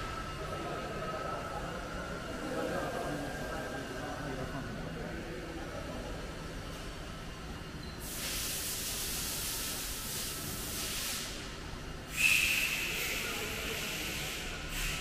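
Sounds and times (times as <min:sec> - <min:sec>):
compressed air hissing: 0:08.0 - 0:11.4, 0:12.1 - 0:15.0
high whistle: 0:12.1 - 0:13.0.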